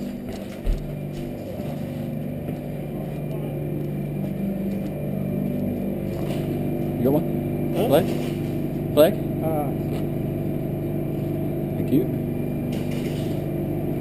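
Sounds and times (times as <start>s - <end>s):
refrigeration unit humming: 0.0s - 14.0s.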